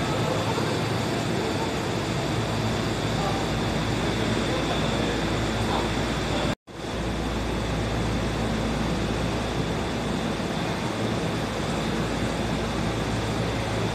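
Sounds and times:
subway train humming: 0.0 - 13.9.

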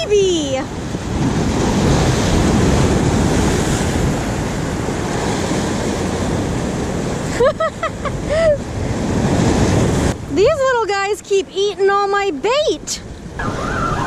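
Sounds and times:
surf breaking over rocks: 0.0 - 10.6
wind buffeting microphone: 0.0 - 14.0.

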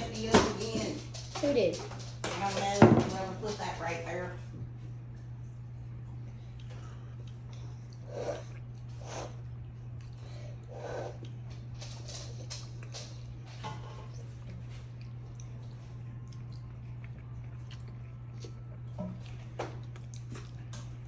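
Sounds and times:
steady low hum: 0.0 - 21.0
chewing with wet smacks: 5.9 - 21.0.

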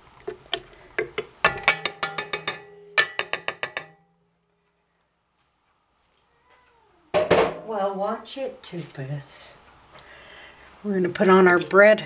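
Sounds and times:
spatula tapping metal bowl: 1.0 - 4.1.

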